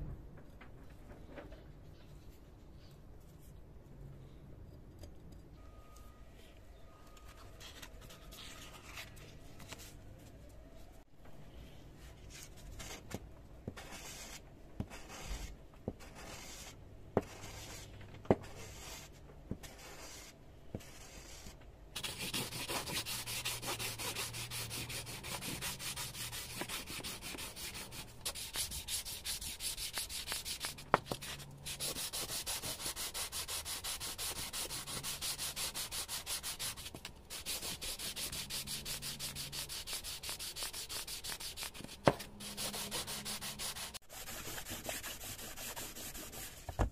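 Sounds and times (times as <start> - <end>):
metal scraping on sandpaper: 19.7 - 46.6.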